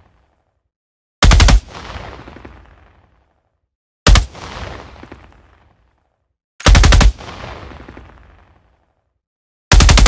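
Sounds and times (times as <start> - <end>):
assault rifle automatic bursts: 1.2 - 1.6, 6.6 - 7.2, 9.7 - 10.0.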